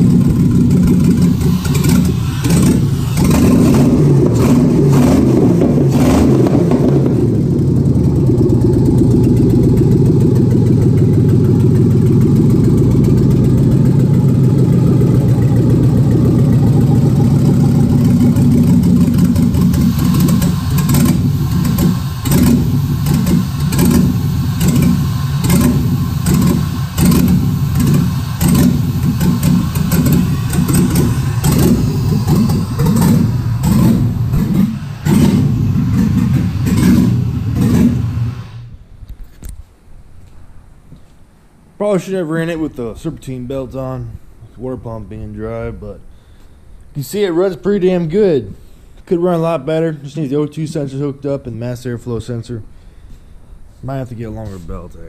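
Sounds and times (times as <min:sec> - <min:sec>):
car engine running: 0:00.0 - 0:38.7.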